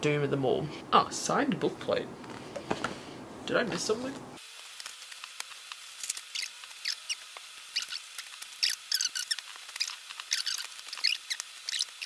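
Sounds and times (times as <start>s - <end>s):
paper and card rustling: 3.7s - 12.0s.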